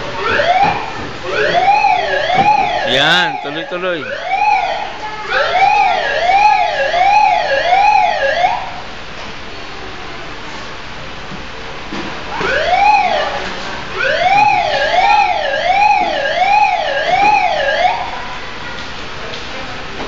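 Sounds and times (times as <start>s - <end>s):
toy fire truck electronic siren: 0.2s - 8.8s, 12.4s - 13.3s, 14.0s - 18.2s.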